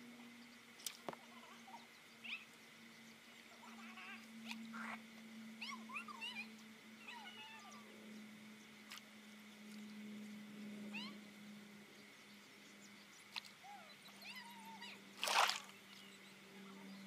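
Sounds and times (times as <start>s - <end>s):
steady low hum: 0.0s - 17.0s
loud splash in water: 15.2s - 15.7s.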